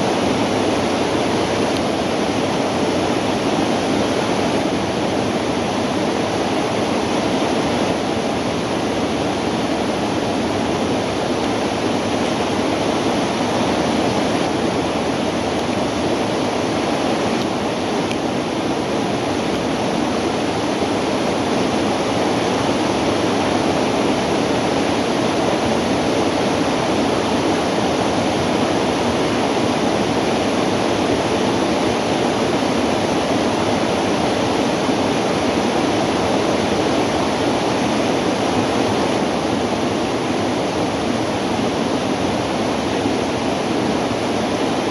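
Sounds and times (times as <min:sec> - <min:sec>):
shallow river rushing: 0:00.0 - 0:44.9.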